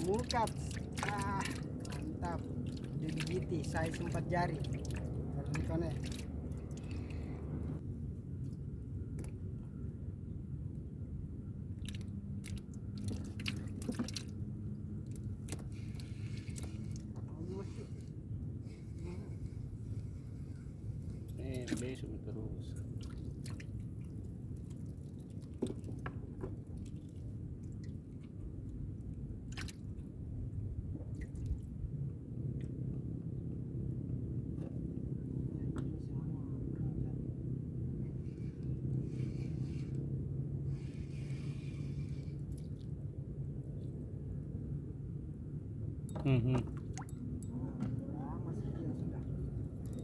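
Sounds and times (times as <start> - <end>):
water dripping and splashing: 0.0 - 7.2, 11.8 - 14.4, 22.9 - 26.0, 29.5 - 29.9, 46.8 - 47.2
water lapping against boat: 0.0 - 7.8, 11.8 - 14.4, 15.0 - 22.0, 22.7 - 28.7, 29.4 - 30.1
low rumble: 0.0 - 21.6
steady low rumble: 0.0 - 50.0.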